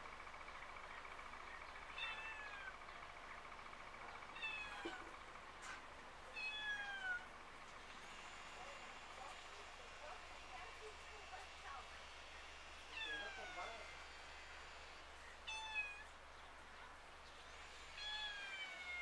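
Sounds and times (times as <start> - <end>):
cat meowing: 1.9 - 2.7, 4.3 - 5.1, 6.3 - 7.2, 12.9 - 13.9, 15.5 - 16.1.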